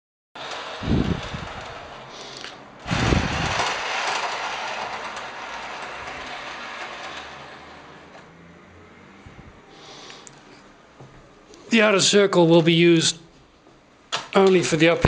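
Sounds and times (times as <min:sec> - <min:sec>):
model train wheels rumbling on rails: 0:00.4 - 0:08.4.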